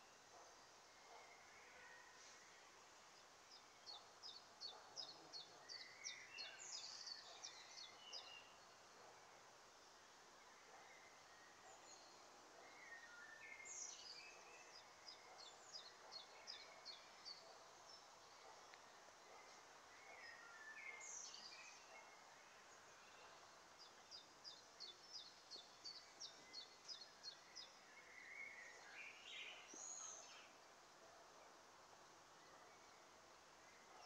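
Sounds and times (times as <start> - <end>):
soft bird chirps: 0.0 - 9.3, 10.4 - 31.6
songbird singing: 0.0 - 34.0
steady outdoor hiss: 0.0 - 34.0.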